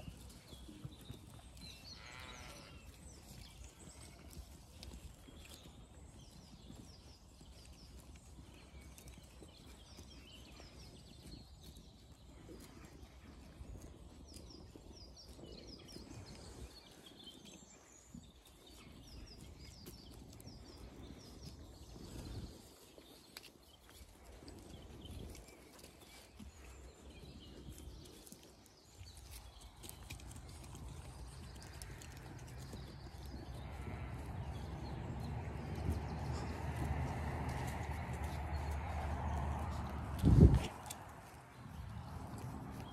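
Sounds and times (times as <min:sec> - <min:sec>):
hooves shuffling: 0:00.0 - 0:42.9
sheep crunching feed: 0:00.0 - 0:42.9
low wind rumble: 0:29.5 - 0:42.9.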